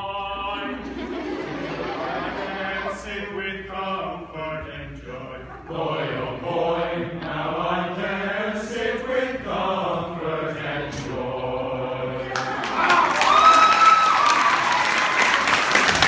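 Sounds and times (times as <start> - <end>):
male choir singing in harmony: 0.0 - 12.8
audience applause: 12.3 - 16.0.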